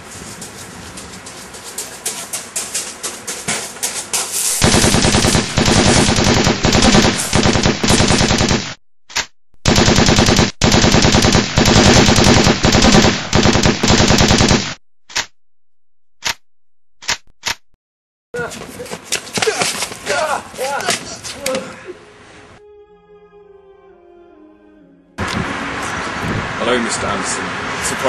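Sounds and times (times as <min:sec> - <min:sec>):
machine-gun bursts: 0:04.6 - 0:08.7, 0:09.6 - 0:14.8
single gunshots: 0:04.6 - 0:14.8.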